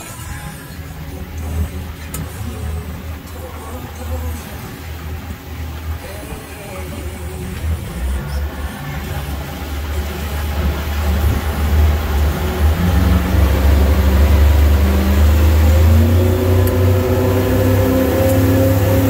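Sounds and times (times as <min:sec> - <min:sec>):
outboard engine accelerating: 0:00.0 - 0:19.0.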